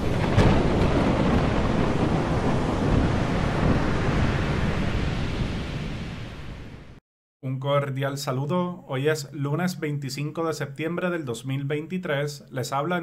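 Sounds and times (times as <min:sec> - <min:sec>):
rough sea waves: 0:00.0 - 0:07.0
wind: 0:00.0 - 0:07.0.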